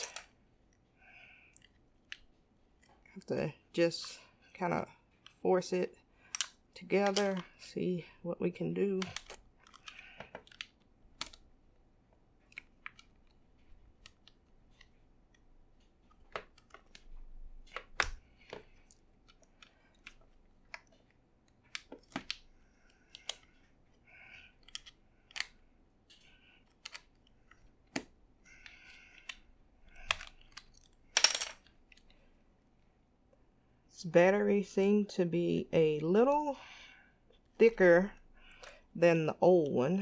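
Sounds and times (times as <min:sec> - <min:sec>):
plastic case clicks and snaps: 0:21.7 - 0:22.4.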